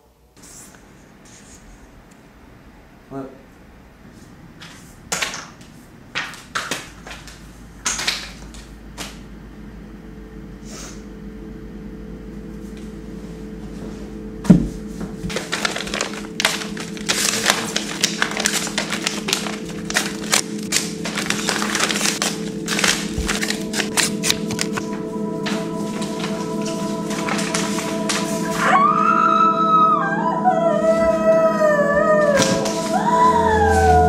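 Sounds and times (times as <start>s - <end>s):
low sustained music tones: 9.4s - 34.0s
paper rustling and crinkling: 15.0s - 28.6s.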